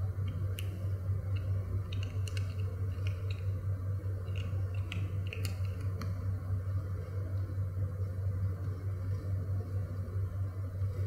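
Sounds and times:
steady low hum: 0.0 - 11.0
kitten chewing crunchy treats: 1.3 - 3.5, 4.1 - 6.1.

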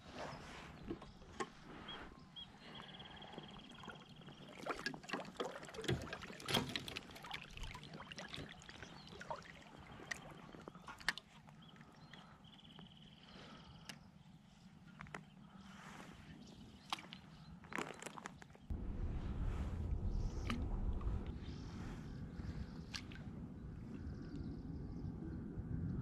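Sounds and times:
water splashing and trickling: 3.0 - 12.4, 16.6 - 24.4.

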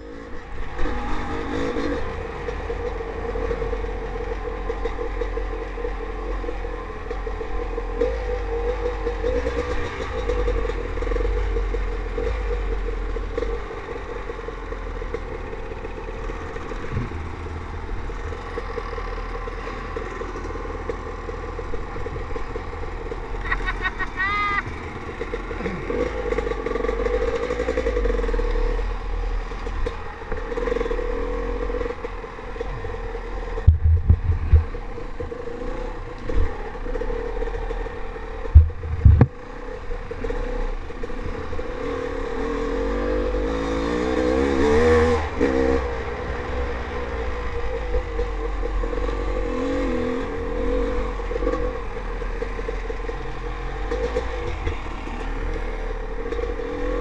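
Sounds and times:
dirt bike engine revving: 0.0 - 57.0
loud low thumps: 38.5 - 39.4.

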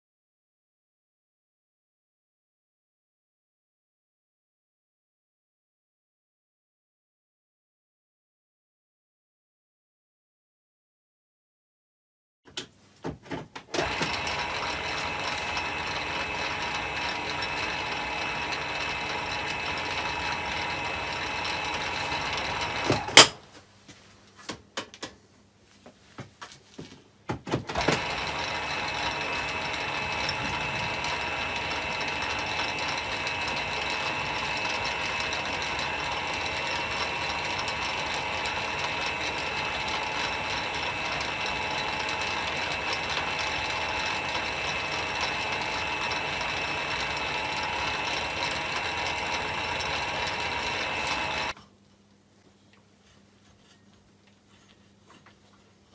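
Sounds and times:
lathe gears whining: 13.8 - 23.3, 27.7 - 51.6.

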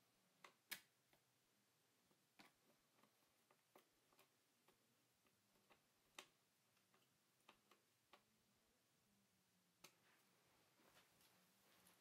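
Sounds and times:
faint clicks and taps: 2.0 - 8.4, 9.7 - 12.0.

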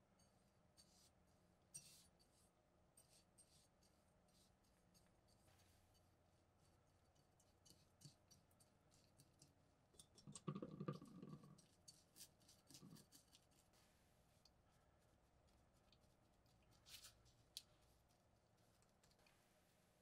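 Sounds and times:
paint brush scratching on blade: 0.8 - 9.2, 11.6 - 13.8.

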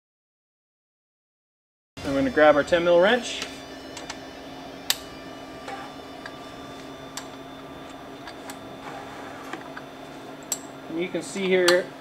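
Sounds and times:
faint steady hum: 2.0 - 12.0
light metallic wrench clicks: 10.4 - 10.7.

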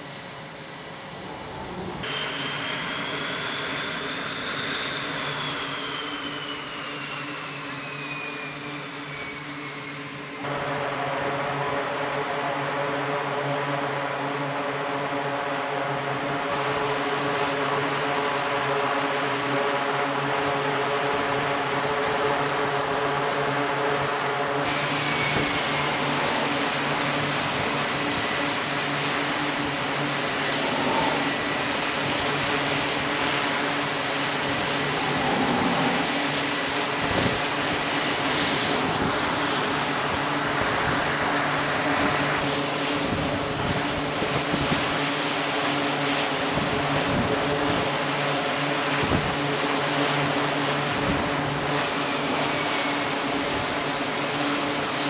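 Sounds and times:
constant whining tones: 0.0 - 55.0
jet engines running: 0.0 - 55.0.

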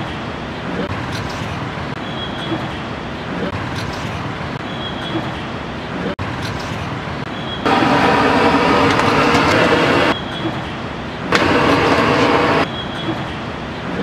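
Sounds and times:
road traffic noise: 0.0 - 14.0
loud pitched horn blasts: 7.6 - 10.2.

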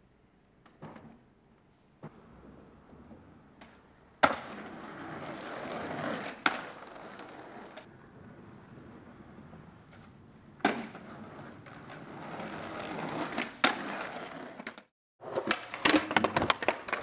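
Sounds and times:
skateboard wheels rolling: 0.6 - 17.0
skateboard clacks: 2.0 - 17.0
skateboard smacking onto concrete: 3.6 - 7.9, 9.7 - 17.0.

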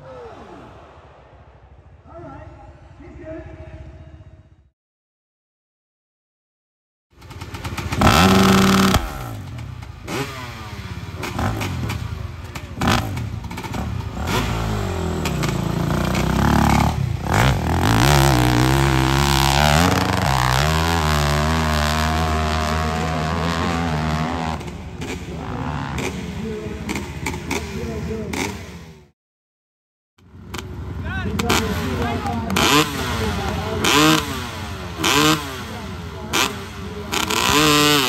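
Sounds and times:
dirt bike engine revving: 7.2 - 29.1, 30.3 - 38.0.

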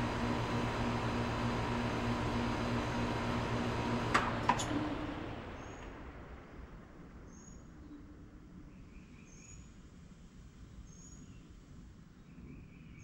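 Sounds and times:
air conditioner hum: 0.0 - 6.6
fan rushing: 0.0 - 7.1.

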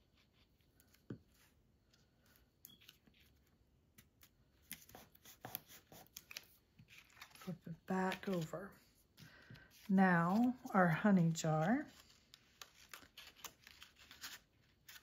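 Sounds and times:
paper rustling and clicking: 2.7 - 8.5, 11.9 - 15.0.

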